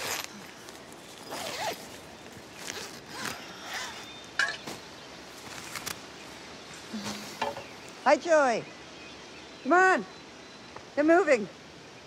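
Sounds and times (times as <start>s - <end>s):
tent zipper being pulled open: 0.0s - 4.2s
nylon tent fabric rustling: 0.0s - 8.0s.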